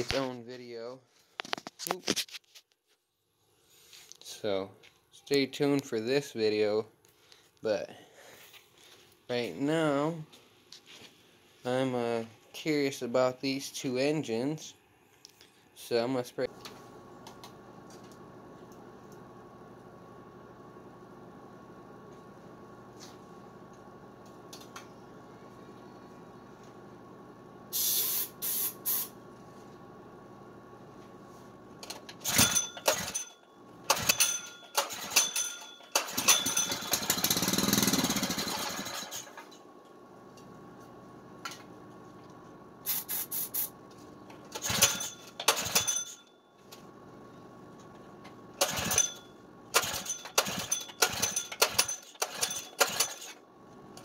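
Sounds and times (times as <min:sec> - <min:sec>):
spray can hissing: 0:27.7 - 0:29.2, 0:42.8 - 0:43.7
pull-start cord yanked: 0:33.9 - 0:39.4, 0:44.5 - 0:46.2, 0:48.6 - 0:53.4.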